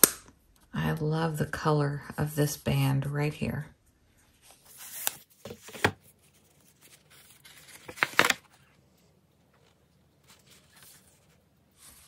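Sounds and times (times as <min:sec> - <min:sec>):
paper rustling and crinkling: 0:04.3 - 0:12.0.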